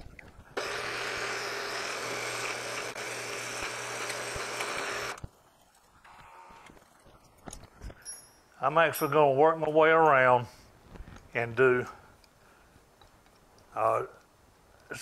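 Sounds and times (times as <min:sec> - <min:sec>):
milling machine drilling metal: 0:00.6 - 0:05.2.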